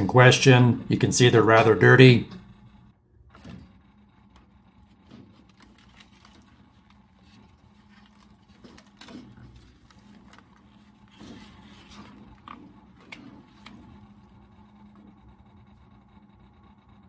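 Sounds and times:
low steady hum: 0.0s - 17.0s
air filter scraping and knocking: 7.2s - 14.0s.

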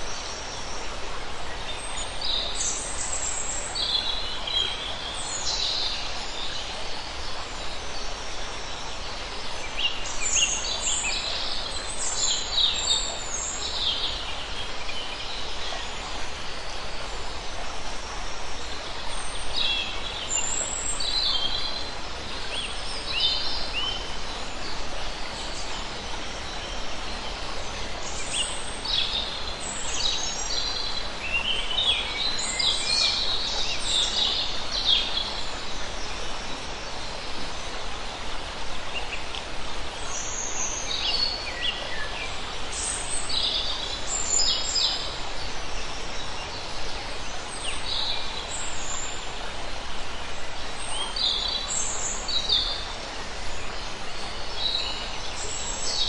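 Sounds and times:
stream flowing over rocks: 0.0s - 56.0s.

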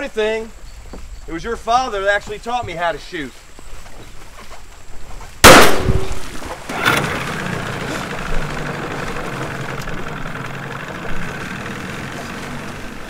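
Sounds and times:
boat motor idling: 6.6s - 13.0s.

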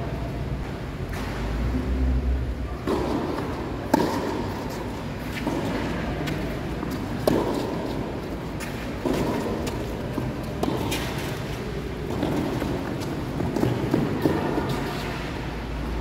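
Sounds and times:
tennis ball struck by rackets: 2.8s - 11.4s.

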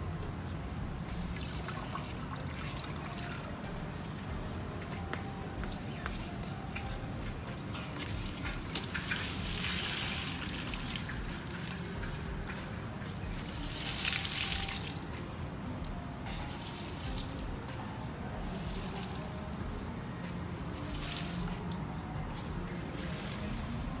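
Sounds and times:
water trickling and dripping: 1.0s - 3.8s, 8.1s - 24.0s.

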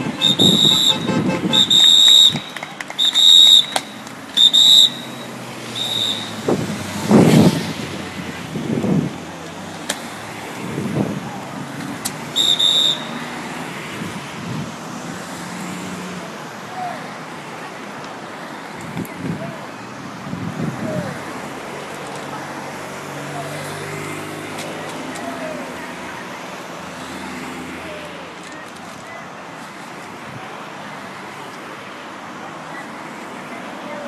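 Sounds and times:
shrill horn toots: 0.0s - 6.5s, 12.4s - 13.3s
cars driving past: 0.0s - 34.0s.

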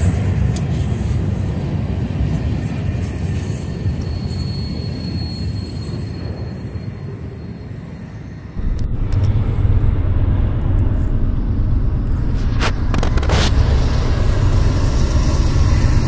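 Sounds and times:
diesel locomotive rumble: 8.6s - 16.0s
high steady whine: 8.6s - 16.0s.

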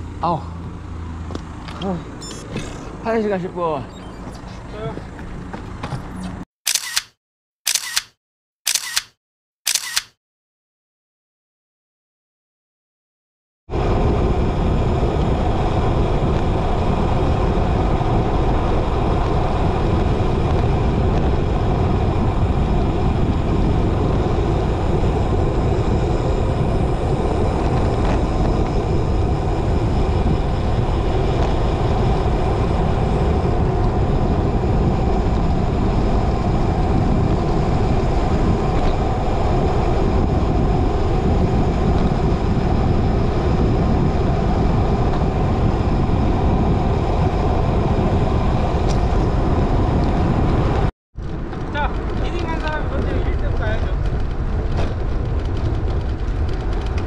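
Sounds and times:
wind rushing over microphone: 13.7s - 57.0s.

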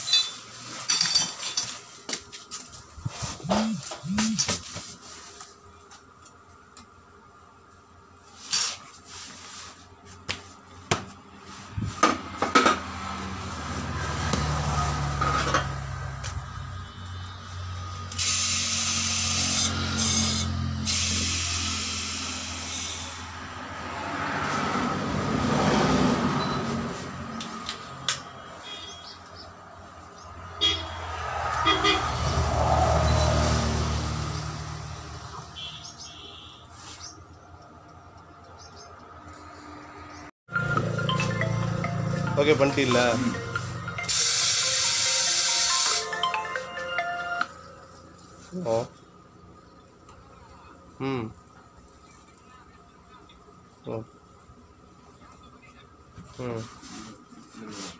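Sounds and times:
short horn toots: 35.5s - 36.8s.

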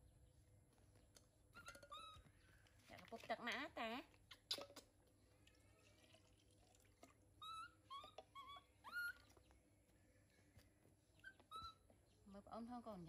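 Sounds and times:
baby monkey whimpering calls: 1.6s - 2.2s, 7.4s - 9.4s, 11.2s - 11.9s.

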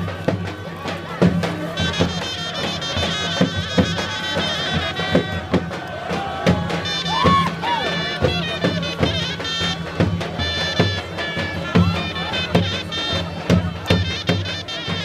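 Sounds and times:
big drum beating: 0.0s - 14.9s
shrill reed wind instruments: 0.0s - 15.0s
crowd shouting and whooping: 4.0s - 8.5s.

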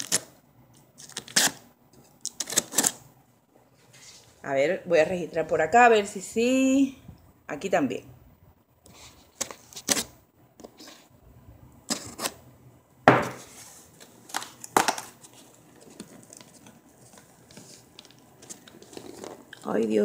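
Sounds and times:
knife scraping packing tape: 0.0s - 0.3s, 1.0s - 1.6s, 2.3s - 3.0s.

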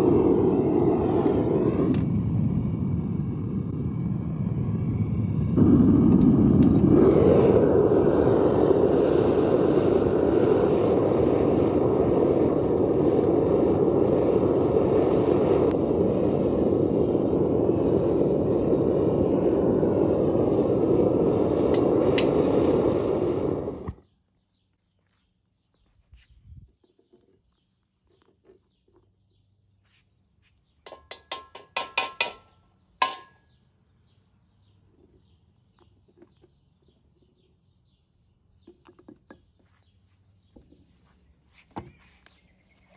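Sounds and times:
gas burner rushing: 0.0s - 24.0s.

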